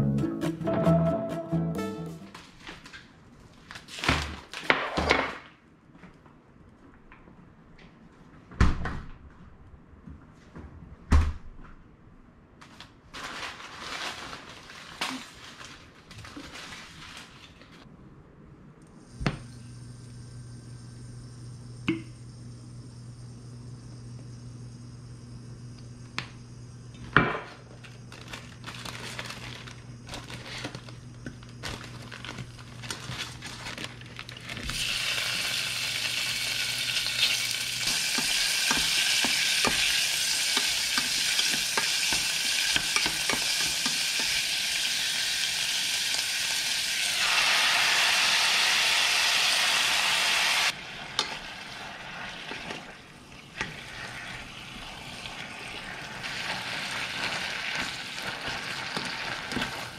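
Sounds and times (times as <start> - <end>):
food sizzling in hot oil: 34.7 - 52.7, 53.8 - 59.9
utensils tapping and clicking: 40.5 - 44.4.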